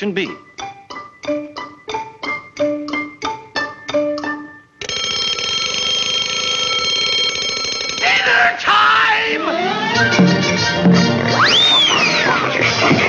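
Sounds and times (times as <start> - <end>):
cartoon music with detached notes: 0.0 - 4.8.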